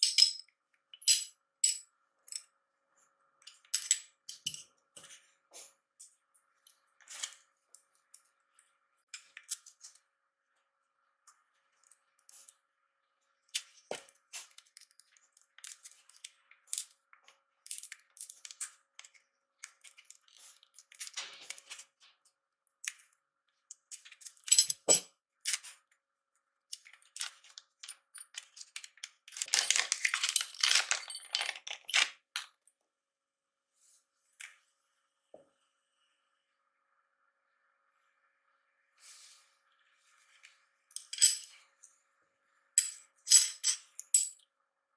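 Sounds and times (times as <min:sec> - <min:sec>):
plastic film crinkling: 0:29.4 - 0:31.7.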